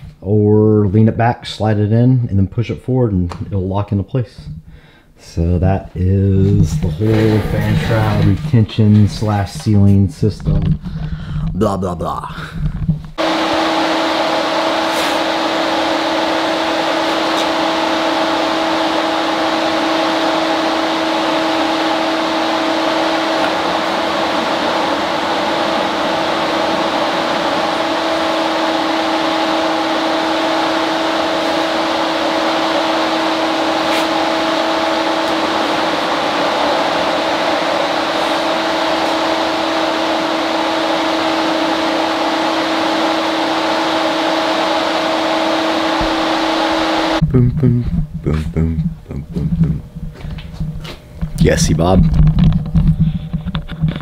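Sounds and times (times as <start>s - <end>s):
machine drone with low hum: 47.1s - 54.0s.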